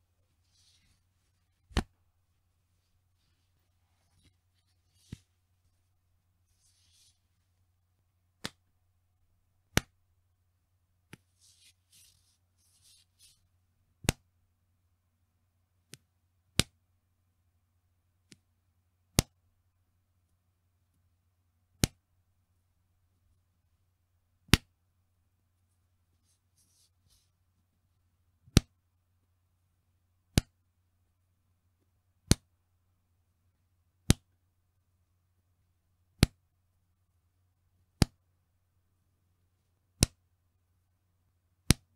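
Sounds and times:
elastic band snapping: 1.7 - 2.0, 8.4 - 8.6, 9.7 - 9.9, 40.0 - 40.2.

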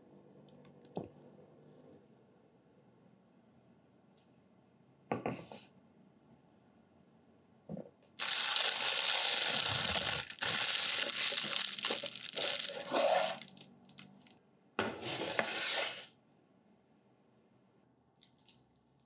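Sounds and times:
plastic piping bag crinkling: 8.2 - 14.3
baking tray scraping on wood: 12.8 - 13.5, 14.8 - 16.1.

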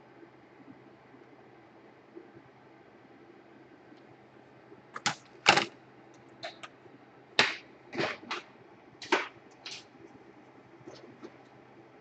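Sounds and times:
plastic clicks and knocks: 5.0 - 5.8.

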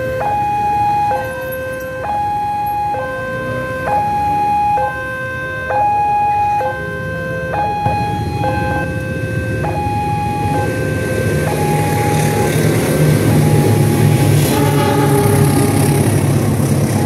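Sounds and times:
two-tone crossing alarm: 0.0 - 17.0
motorcycle engines running: 7.6 - 17.0.

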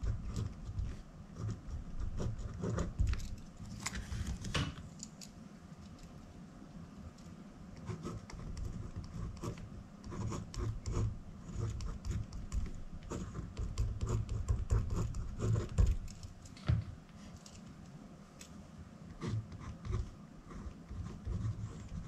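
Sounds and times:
pen scratching on paper: 0.0 - 3.2, 7.8 - 16.2, 19.1 - 22.0.

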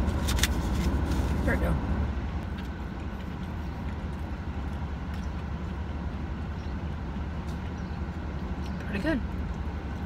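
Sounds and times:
car humming at rest: 0.0 - 10.0
soft chewing: 2.3 - 10.0.

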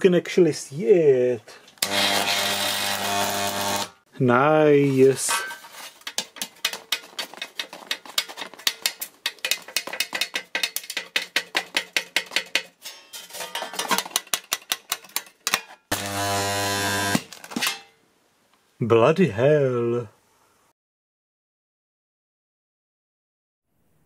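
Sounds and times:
spot welder buzz: 1.8 - 4.0, 15.9 - 17.3
abrasive cloth scraping steel: 4.8 - 9.2.

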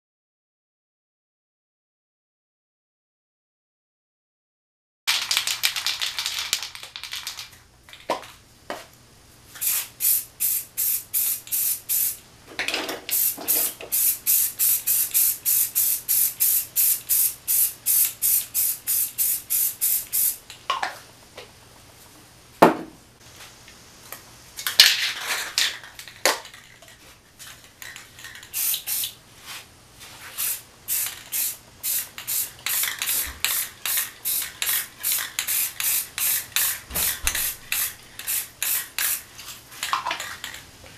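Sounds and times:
spray can ball rattling: 5.1 - 8.4, 9.6 - 20.5, 24.6 - 29.2, 30.2 - 40.6
spray paint hissing: 9.6 - 12.2, 13.1 - 20.4, 28.0 - 29.2, 30.2 - 39.9.

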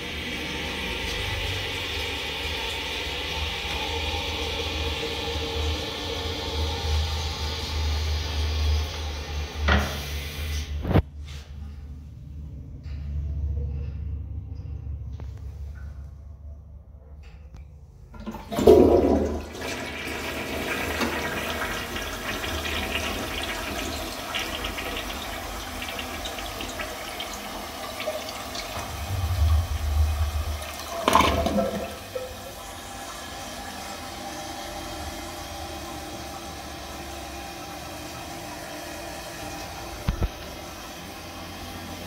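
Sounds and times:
gurgling drain: 0.0 - 11.0, 18.1 - 42.0
toilet flush water rushing: 0.0 - 11.0, 18.1 - 42.0
toilet tank refilling hiss: 0.0 - 11.0, 18.2 - 42.0
toilet lever: 30.9 - 32.0.

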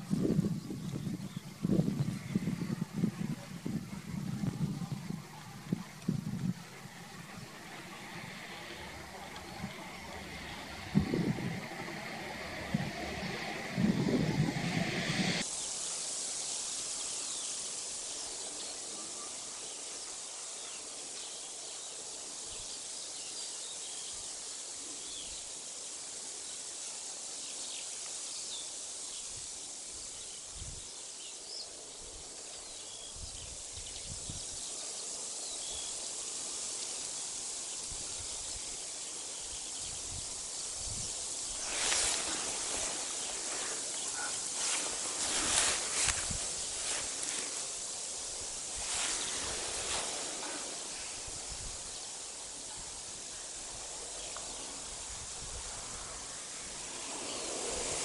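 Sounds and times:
wind and rustling: 0.0 - 18.8, 30.2 - 58.0
loud rustling burst: 4.1 - 15.4, 41.4 - 51.4.

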